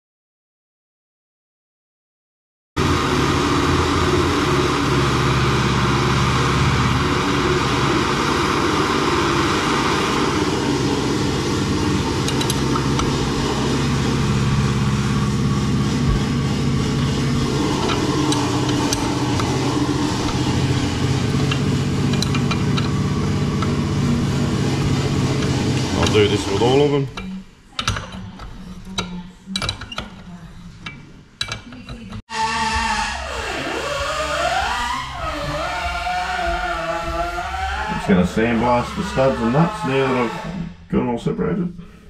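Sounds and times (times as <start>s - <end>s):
blowtorch hissing: 2.8s - 27.1s
low machine hum: 2.8s - 42.0s
spanner clicking on nut: 21.4s - 23.0s, 27.1s - 32.2s.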